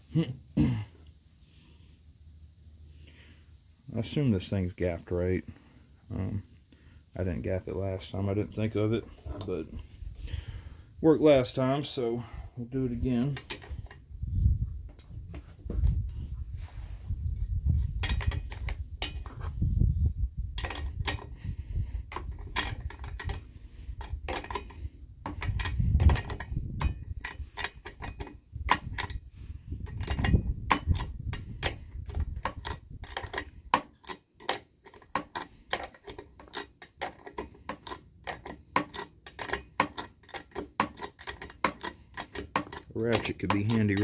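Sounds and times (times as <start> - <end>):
wrench clicking and scraping on metal: 8.1 - 9.9, 13.2 - 14.0, 17.9 - 19.6, 20.6 - 44.0.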